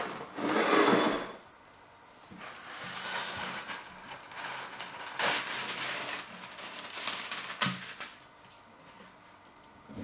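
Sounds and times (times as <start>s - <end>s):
packaging rustling and crinkling: 3.0s - 8.2s.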